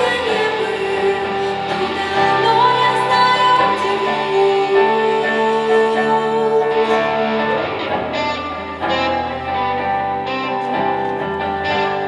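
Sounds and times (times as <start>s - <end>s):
woman singing slow song: 0.0s - 9.1s
electric guitars playing: 0.0s - 12.0s.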